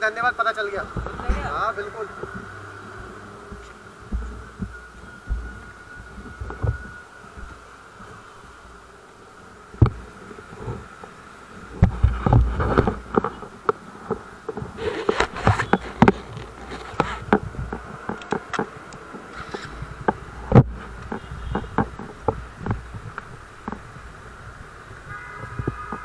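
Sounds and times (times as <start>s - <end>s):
steady buzzing hum: 0.1s - 18.4s.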